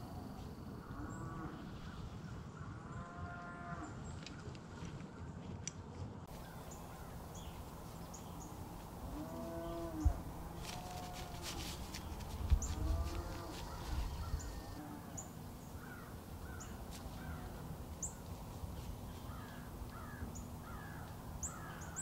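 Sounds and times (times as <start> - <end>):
low outdoor rumble: 4.0 - 22.0
cattle mooing: 9.1 - 11.6, 12.8 - 15.2.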